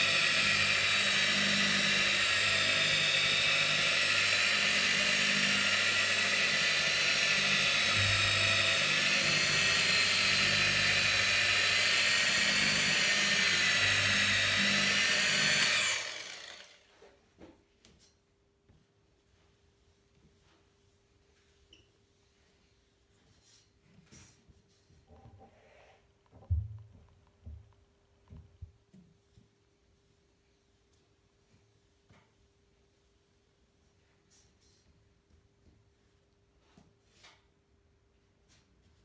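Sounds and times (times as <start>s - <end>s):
car polisher whining: 0.0s - 16.9s.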